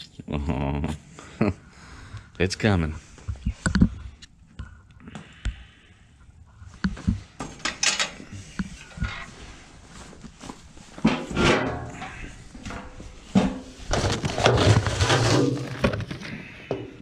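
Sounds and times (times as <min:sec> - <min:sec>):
paper bag rustling: 0:13.7 - 0:16.3.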